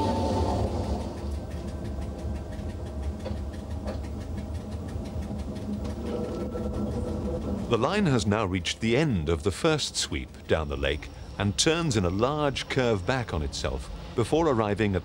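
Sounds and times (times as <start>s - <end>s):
electric train rumbling on track: 0.0s - 15.0s
faint rapid clicks: 0.4s - 8.8s.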